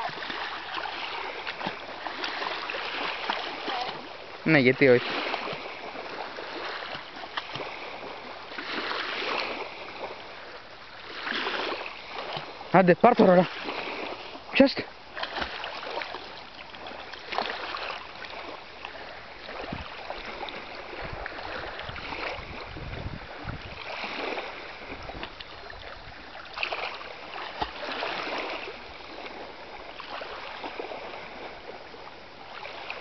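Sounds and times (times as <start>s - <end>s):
sea water lapping in shallows: 0.0s - 33.0s
wind on microphone: 19.3s - 26.4s.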